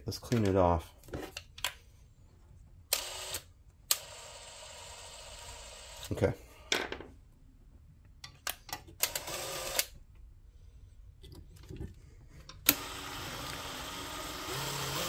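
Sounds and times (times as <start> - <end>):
drill drilling into steel: 12.7 - 15.0.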